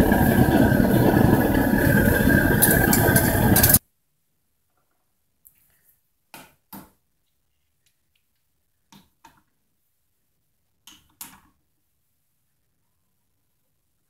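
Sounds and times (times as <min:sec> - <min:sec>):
metal ingots clacking: 0:02.3 - 0:03.8.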